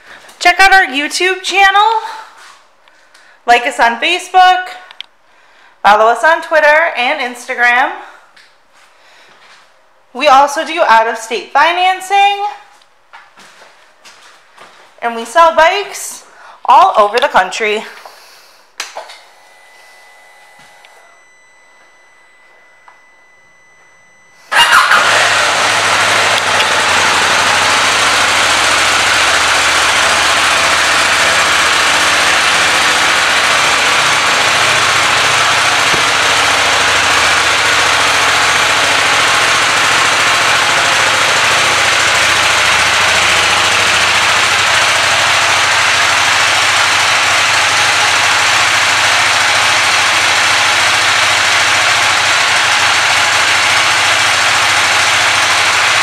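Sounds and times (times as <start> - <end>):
motorcycle engine idling: 24.5 - 56.0.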